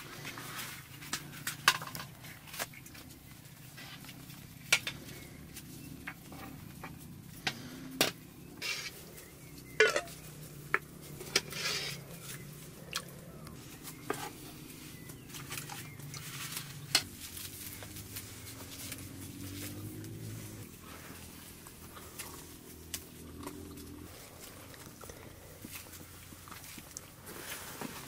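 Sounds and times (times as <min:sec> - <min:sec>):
metal ladle clinking on pot: 0:09.8 - 0:10.1.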